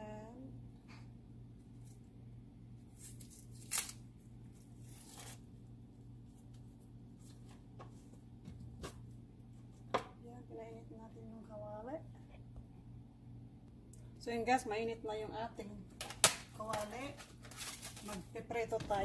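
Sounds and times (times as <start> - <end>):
steady low hum: 0.0 - 19.0
onion skin crackling and tearing: 2.8 - 5.5, 16.0 - 18.3.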